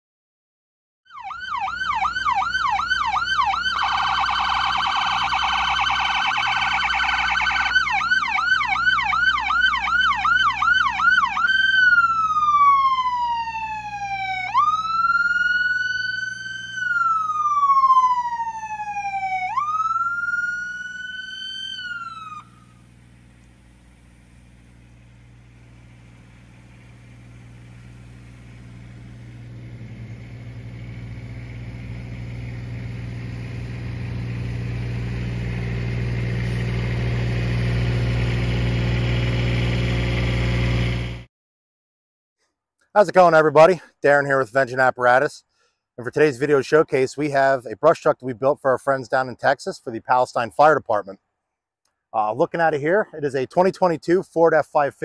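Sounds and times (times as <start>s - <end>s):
fire truck siren: 1.1s - 41.3s
truck engine running: 1.3s - 41.3s.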